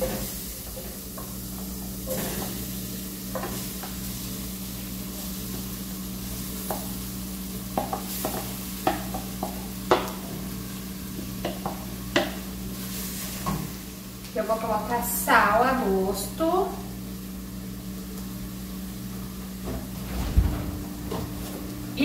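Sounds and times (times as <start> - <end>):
oil and garlic sizzling in pan: 0.0 - 19.8
steady low hum: 0.0 - 22.0.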